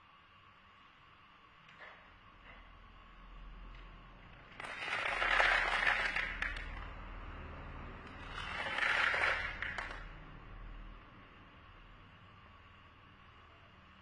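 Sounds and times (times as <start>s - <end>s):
corn kernels rattling into plastic tub: 4.6s - 6.7s, 8.2s - 10.0s.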